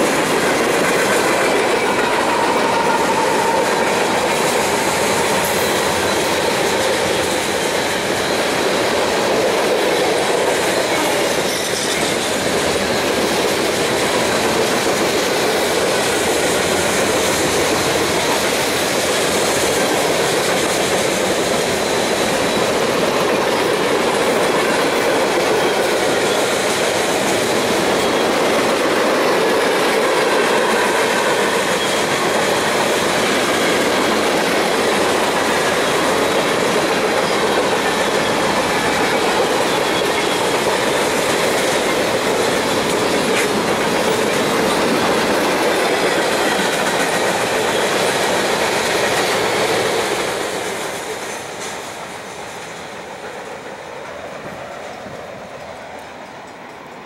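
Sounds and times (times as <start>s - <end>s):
freight train rolling past: 0.0s - 57.0s
wheel squeal: 30.6s - 32.8s.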